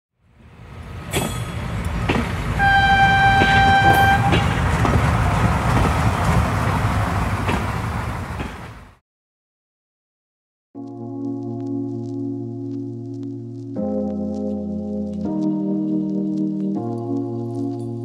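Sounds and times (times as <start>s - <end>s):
passing train rumble: 0.3s - 9.0s
train horn blast: 2.6s - 4.7s.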